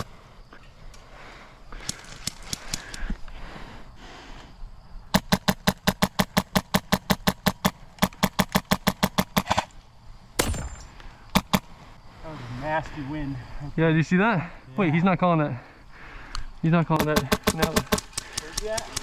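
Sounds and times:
airsoft gun firing: 0:05.1 - 0:09.7, 0:17.0 - 0:19.0.

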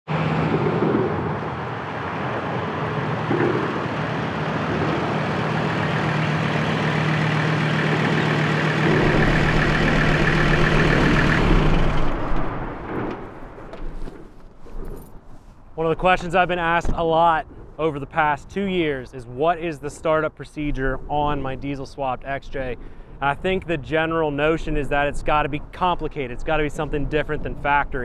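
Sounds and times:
diesel engine running: 0:00.1 - 0:13.9
deep rumble: 0:00.2 - 0:15.0.

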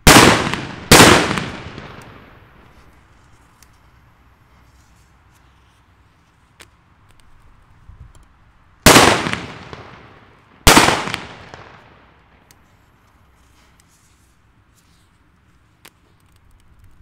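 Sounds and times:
firecrackers exploding: 0:00.0 - 0:02.5, 0:08.8 - 0:12.1.

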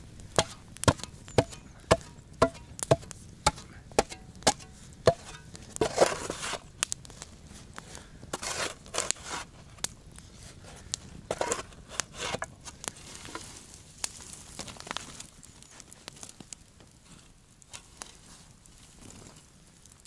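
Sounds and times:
wood fire crackling: 0:00.0 - 0:20.0
shovel scraping earth: 0:00.4 - 0:06.8, 0:08.3 - 0:09.9, 0:11.3 - 0:13.6.

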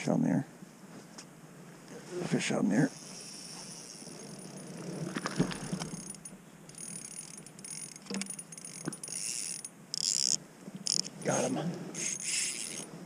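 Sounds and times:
fishing reel clicking and buzzing: 0:02.9 - 0:12.9.

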